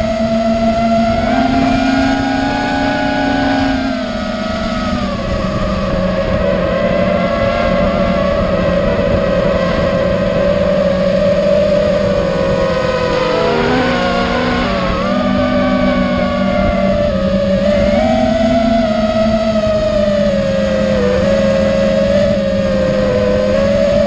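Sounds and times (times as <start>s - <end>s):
low rushing noise: 0.0s - 16.5s
drone motors whining: 0.0s - 24.0s.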